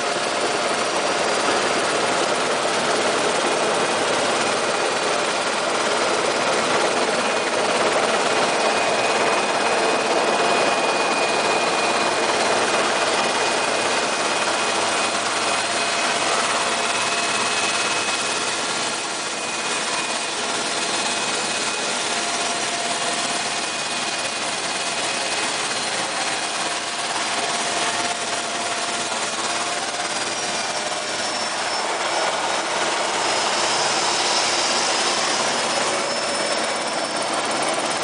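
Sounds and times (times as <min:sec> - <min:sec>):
helicopter turbine whine: 0:00.0 - 0:38.0
rotor and engine noise: 0:00.0 - 0:38.0
high-pitched whine: 0:29.5 - 0:38.0.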